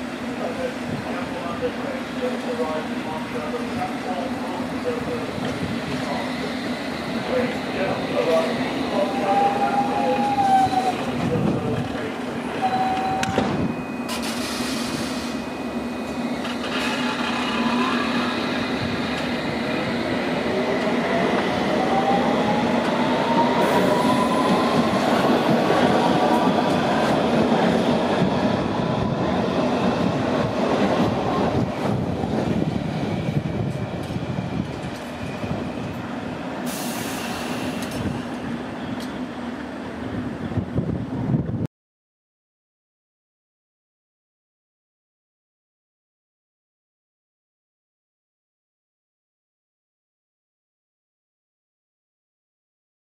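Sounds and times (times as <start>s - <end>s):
train traction motors whining: 0.0s - 30.2s
wheels rumbling on rails: 0.0s - 41.6s.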